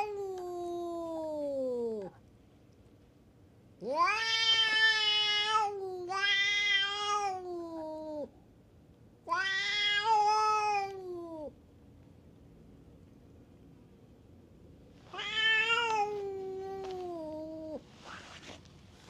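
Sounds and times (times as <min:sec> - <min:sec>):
cat yowling: 0:03.8 - 0:08.3, 0:09.3 - 0:11.5, 0:15.1 - 0:17.8.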